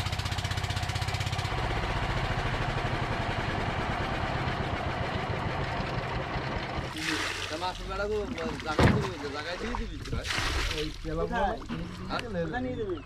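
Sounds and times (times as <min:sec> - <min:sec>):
boat engine running: 0:00.0 - 0:10.2.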